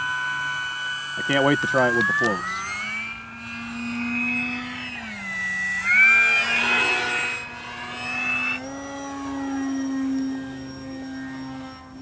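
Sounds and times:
model plane motor whine: 0:00.0 - 0:12.0.

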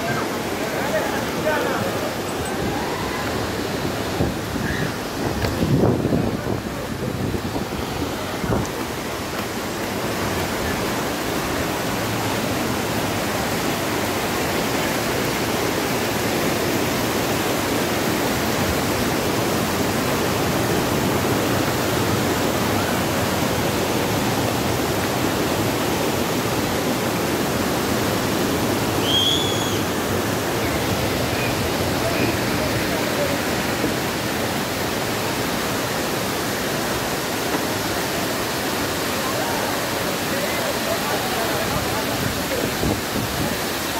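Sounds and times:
waterfall rushing: 0:00.0 - 0:43.9.

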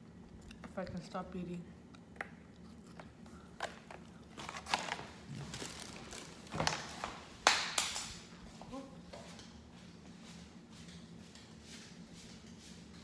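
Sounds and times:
person getting up from sofa: 0:04.3 - 0:07.3.

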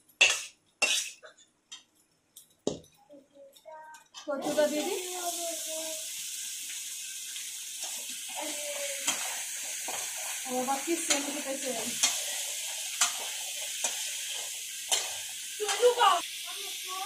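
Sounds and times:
metal spatula clinking on pan: 0:00.2 - 0:02.0, 0:11.0 - 0:12.3
vegetables sizzling in hot oil: 0:04.3 - 0:17.0.

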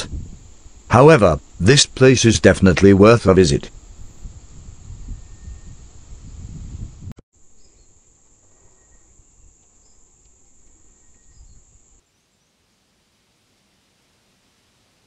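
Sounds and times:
insect chorus trilling: 0:07.4 - 0:12.0.

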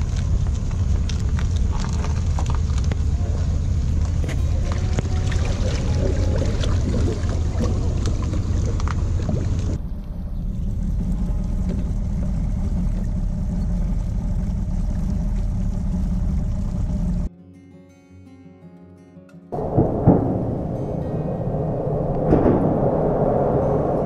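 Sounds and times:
boat motor rumbling: 0:00.0 - 0:17.3, 0:19.6 - 0:24.0
soft music: 0:04.3 - 0:07.9
rushing noise: 0:19.6 - 0:24.0.

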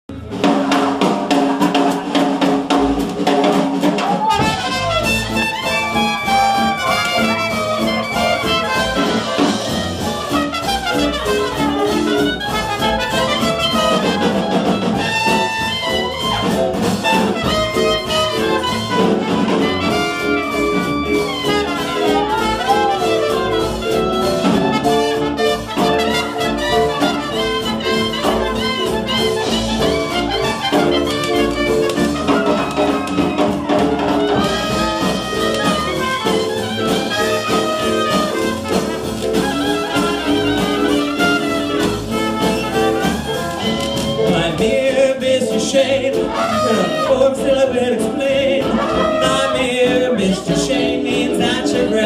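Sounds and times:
drums: 0:00.0 - 0:52.0
jazz band playing: 0:00.1 - 0:52.0
horns playing sliding notes: 0:04.1 - 0:44.6, 0:46.1 - 0:47.6, 0:48.6 - 0:50.2.

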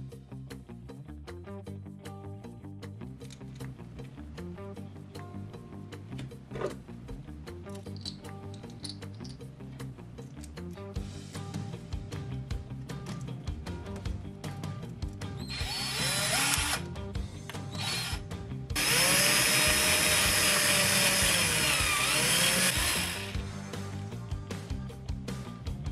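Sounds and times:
power drill boring into board: 0:15.5 - 0:16.8, 0:17.7 - 0:18.2, 0:18.8 - 0:23.4.

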